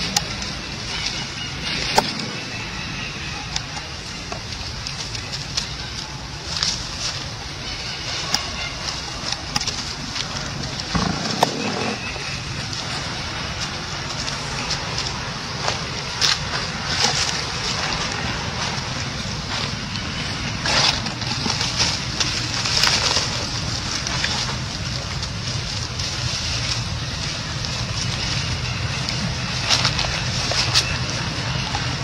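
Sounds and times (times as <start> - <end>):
monkeys rustling dry leaves: 0.0 - 32.0
steady outdoor hiss: 0.0 - 32.0.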